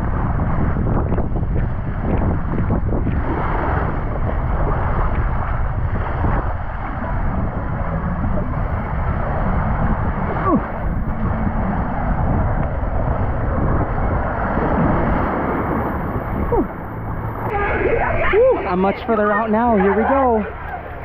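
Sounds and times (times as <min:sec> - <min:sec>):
water rushing: 0:00.0 - 0:21.0
wind buffeting microphone: 0:00.0 - 0:21.0
distant shouts: 0:16.4 - 0:21.0.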